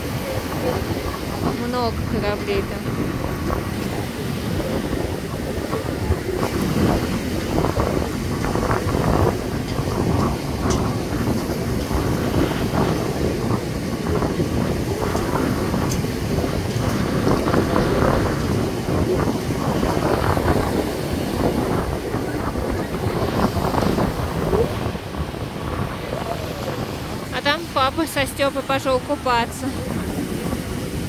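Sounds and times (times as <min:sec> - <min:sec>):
sea waves on beach: 0:00.0 - 0:31.0
wind buffeting microphone: 0:00.0 - 0:31.0.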